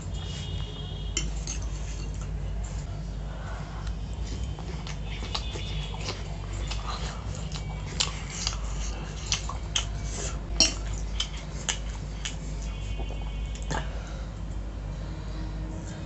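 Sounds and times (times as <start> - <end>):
fork clinking on ceramic plate: 10.6 - 10.9.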